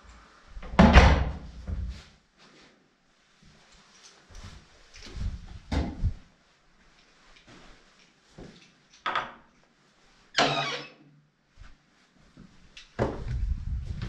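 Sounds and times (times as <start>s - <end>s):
footsteps and scuffs in stairwell: 1.4s - 8.9s, 11.5s - 14.0s.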